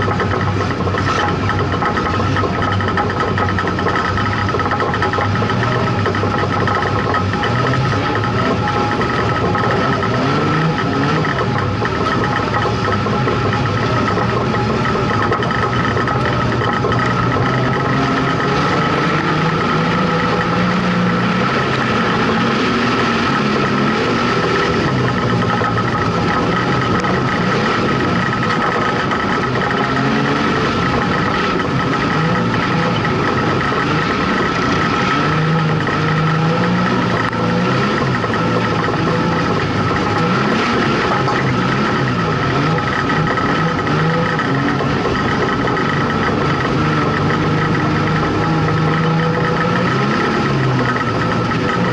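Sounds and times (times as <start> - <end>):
race car engine revving: 0.0 - 51.9
steady high whine: 0.0 - 51.9.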